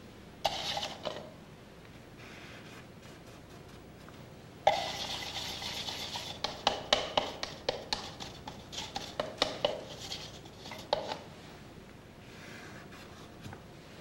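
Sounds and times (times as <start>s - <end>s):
painting tool scraping: 0.4s - 1.3s, 2.2s - 11.4s.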